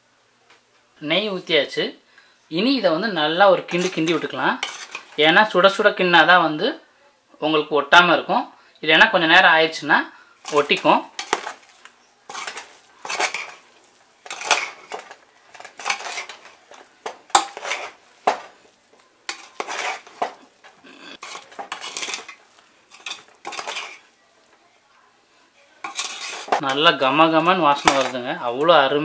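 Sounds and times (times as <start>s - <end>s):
metal spoon scraping metal pot: 3.7s - 5.2s, 10.4s - 18.5s, 19.3s - 24.1s, 25.8s - 28.3s.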